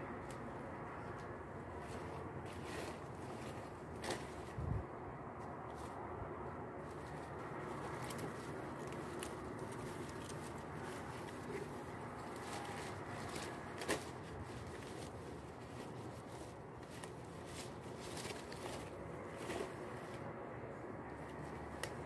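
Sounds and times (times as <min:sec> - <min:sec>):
leaf snapping: 0:00.2 - 0:00.4, 0:07.7 - 0:15.2, 0:21.1 - 0:22.0
leaves rustling and crackling: 0:00.2 - 0:06.0, 0:06.7 - 0:22.0.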